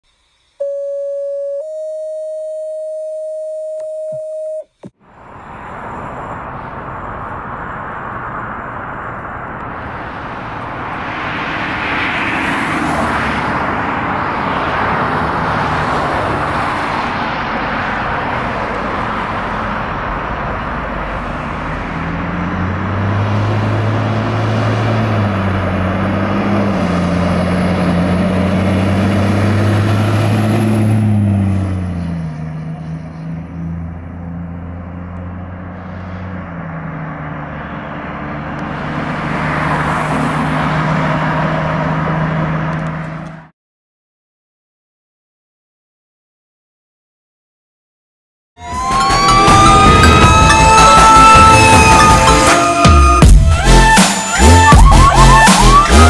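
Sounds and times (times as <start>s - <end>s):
diesel engine drone: 0.0s - 43.5s, 48.6s - 56.0s
two-note electronic tone: 0.4s - 4.8s, 48.6s - 56.0s
roadway noise: 4.6s - 43.5s, 48.6s - 56.0s.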